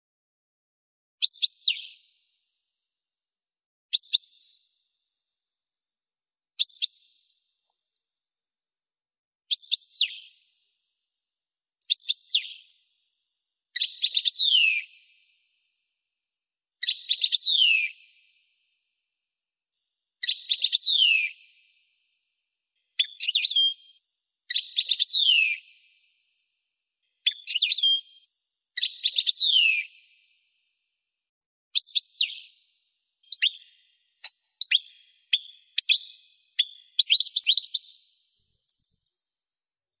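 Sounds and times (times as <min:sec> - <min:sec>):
goldfinch singing: 0:27.2 - 0:28.0, 0:33.2 - 0:38.0.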